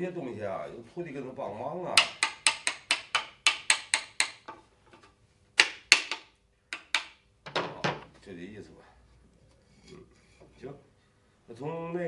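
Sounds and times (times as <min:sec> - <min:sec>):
hammer tapping on wood: 0:02.0 - 0:04.6, 0:05.6 - 0:07.2.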